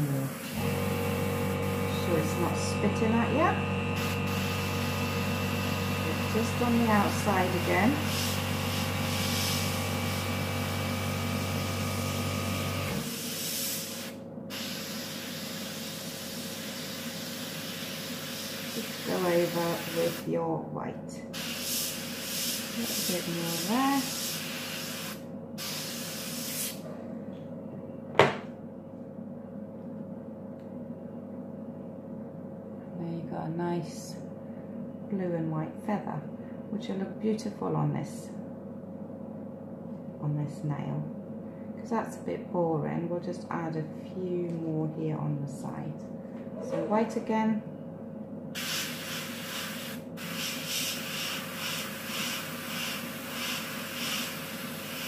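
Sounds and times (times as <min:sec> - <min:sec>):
airbrush spraying hiss: 0:08.0 - 0:10.2, 0:13.0 - 0:20.2, 0:21.4 - 0:26.8, 0:48.6 - 0:55.0.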